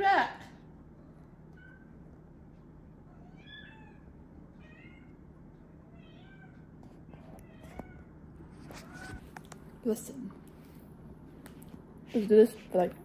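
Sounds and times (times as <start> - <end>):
cat meowing: 3.1 - 5.2, 5.9 - 6.6.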